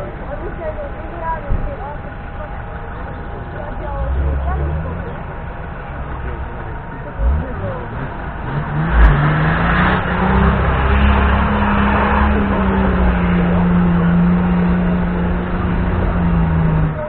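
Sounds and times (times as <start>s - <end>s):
engine revving hard: 6.1s - 17.0s.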